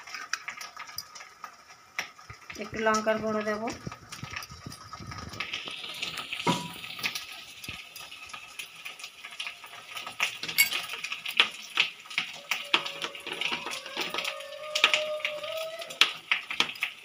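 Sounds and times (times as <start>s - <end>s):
crab pieces rattling in a bowl: 0.0s - 17.0s.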